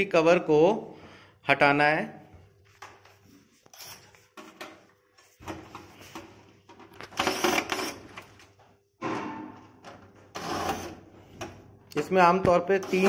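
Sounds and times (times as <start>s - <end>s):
screwdriver clicking and scraping: 3.6s - 4.7s.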